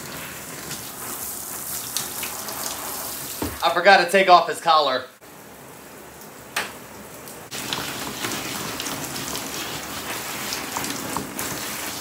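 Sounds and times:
shower spray on dog's wet coat: 0.0 - 3.6, 7.5 - 12.0.

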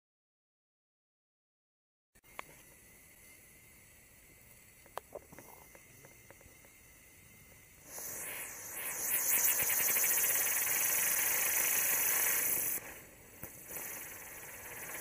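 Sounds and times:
firework fountain hissing: 7.8 - 15.0.

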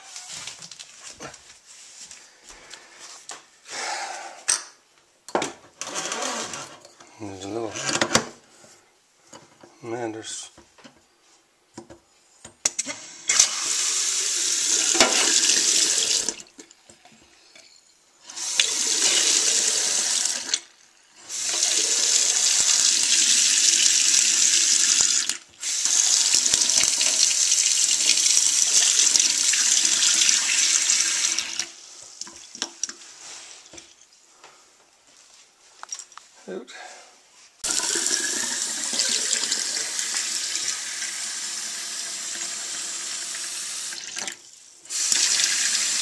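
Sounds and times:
faucet water running into sink: 13.3 - 16.5, 18.3 - 20.7, 21.3 - 32.3, 37.6 - 46.0.

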